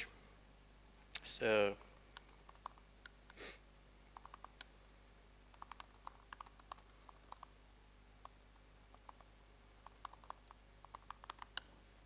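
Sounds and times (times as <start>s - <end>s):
laptop keyboard keys clicking: 2.2s - 3.2s, 4.2s - 4.7s, 5.5s - 7.5s, 8.2s - 11.7s
short soft hiss: 3.3s - 3.7s.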